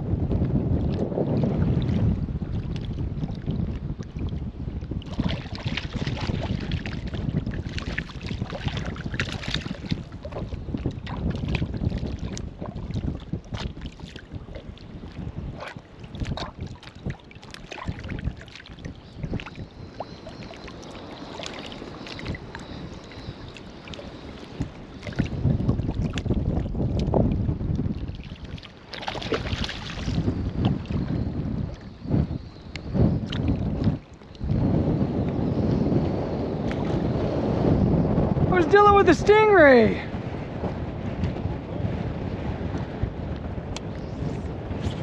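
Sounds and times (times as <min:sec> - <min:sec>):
wind buffeting microphone: 0:00.0 - 0:45.0
shallow water sloshing: 0:00.8 - 0:34.6
small clicks and splashes: 0:02.6 - 0:31.0.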